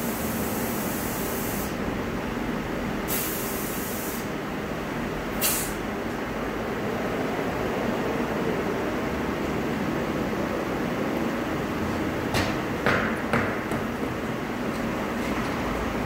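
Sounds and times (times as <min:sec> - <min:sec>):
compressed air hissing: 0:00.0 - 0:01.8, 0:03.1 - 0:04.4, 0:05.3 - 0:05.9
shop machinery noise: 0:00.0 - 0:16.0.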